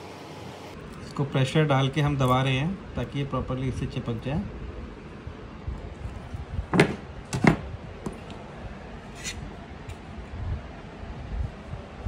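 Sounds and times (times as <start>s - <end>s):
tools set down on workbench: 6.7s - 7.6s
sharp knocks: 6.7s - 7.7s.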